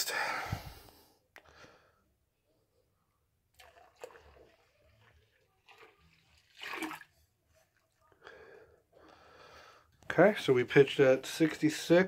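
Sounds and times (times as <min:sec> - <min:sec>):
liquid glugging and splashing: 0:03.5 - 0:08.0.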